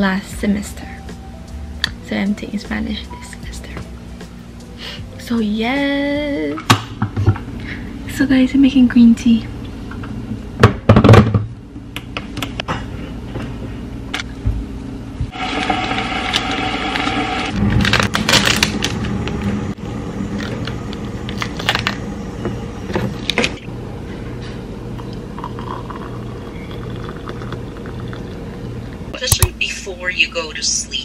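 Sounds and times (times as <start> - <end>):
steady low hum: 0.0 - 15.4, 17.4 - 31.0
cups and utensils clinking: 25.0 - 28.4.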